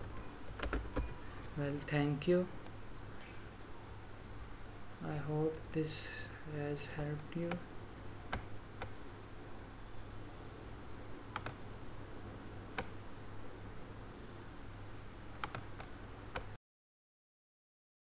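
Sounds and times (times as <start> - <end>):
low electrical hum and hiss: 0.0 - 16.6
computer mouse clicks: 8.3 - 9.0, 11.3 - 11.6, 12.8 - 13.0, 15.4 - 16.5.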